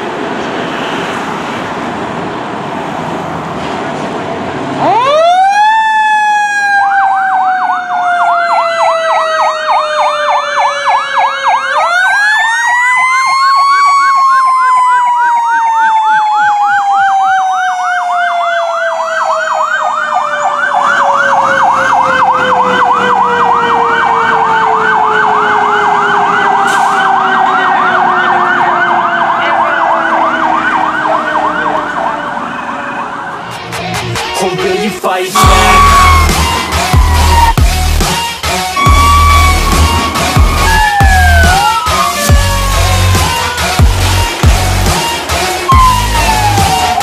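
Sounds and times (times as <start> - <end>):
road noise: 0.0 - 47.0
electronic siren yelping: 4.8 - 33.4, 35.4 - 47.0
truck engine: 20.6 - 34.7, 35.3 - 47.0.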